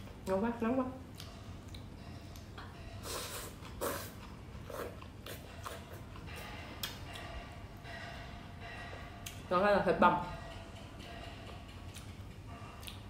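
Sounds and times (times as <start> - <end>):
person slurping noodles: 3.1 - 6.0.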